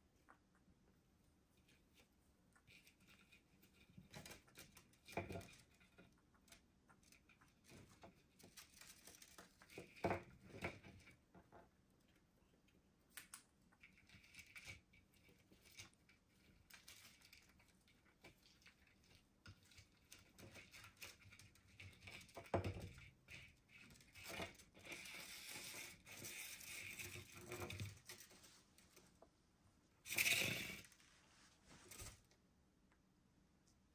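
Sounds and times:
bird tapping and scratching: 0:02.6 - 0:11.8, 0:13.1 - 0:29.2
scraping rustle: 0:14.0 - 0:29.2, 0:30.0 - 0:32.4.

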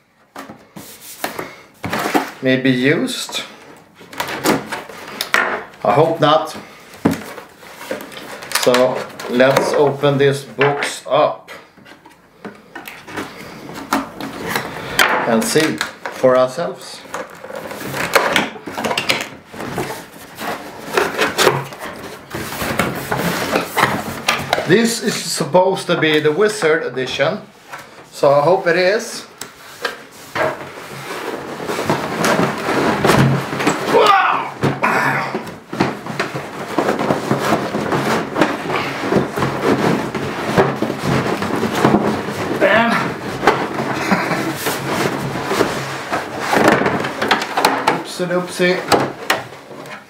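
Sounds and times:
cardboard packaging rustling: 0:00.0 - 0:10.5, 0:11.6 - 0:50.0
cardboard scraping on cardboard: 0:19.5 - 0:24.6.

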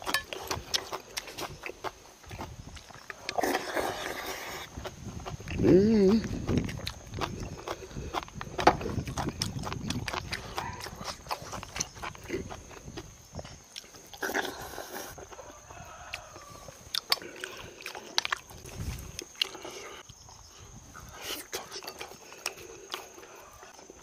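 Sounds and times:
person chewing: 0:00.0 - 0:20.3, 0:20.9 - 0:24.0
slurping: 0:02.8 - 0:13.0.

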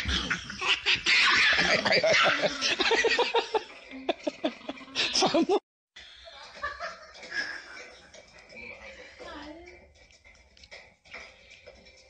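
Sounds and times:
person laughing and giggling: 0:00.0 - 0:05.6.

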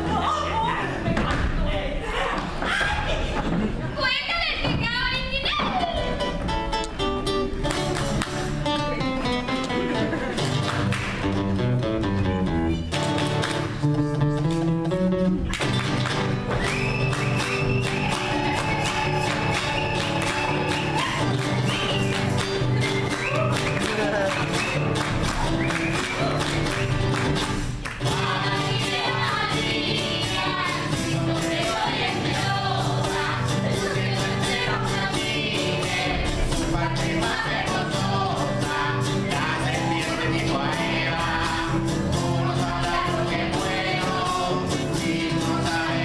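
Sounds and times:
guitar music: 0:05.8 - 0:46.0
voices singing: 0:16.8 - 0:26.9, 0:28.0 - 0:46.0.

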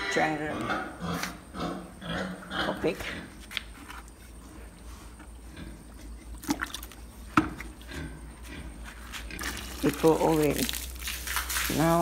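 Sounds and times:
water trickling into a bucket: 0:06.3 - 0:07.1, 0:09.4 - 0:12.0.

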